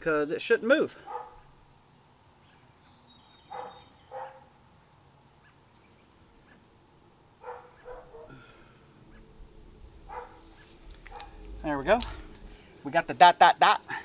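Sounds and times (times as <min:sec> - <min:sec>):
dog barking: 0:01.0 - 0:01.5, 0:03.5 - 0:04.5, 0:07.4 - 0:08.4, 0:10.1 - 0:10.4, 0:11.1 - 0:11.4.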